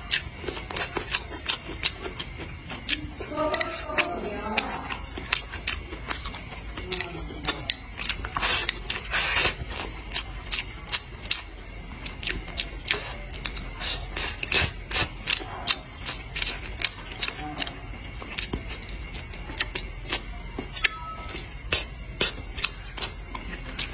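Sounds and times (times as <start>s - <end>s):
wet chewing and mouth sounds: 0.0s - 23.9s.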